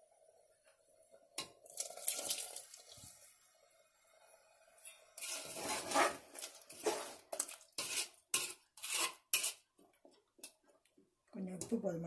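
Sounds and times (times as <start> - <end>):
metal ladle scraping a pot: 4.8 - 9.7.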